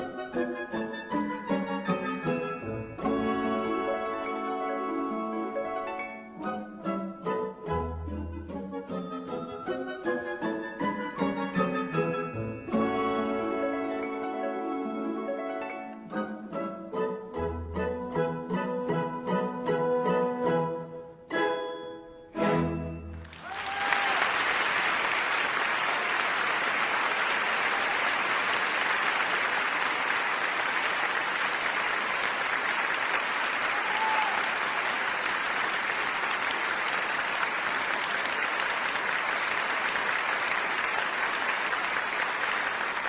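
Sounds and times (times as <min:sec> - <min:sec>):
audience applauding: 0:23.1 - 0:43.0.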